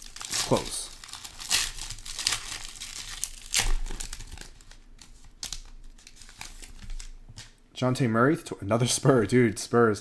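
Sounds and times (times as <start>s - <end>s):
foil wrapper crinkling and tearing: 0.0s - 7.2s.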